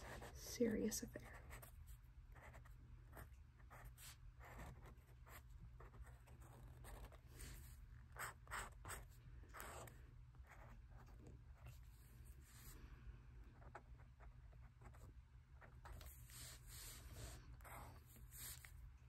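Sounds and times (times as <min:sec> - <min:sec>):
marker scratching on paper: 0:00.0 - 0:00.4, 0:02.4 - 0:12.8, 0:14.6 - 0:18.7.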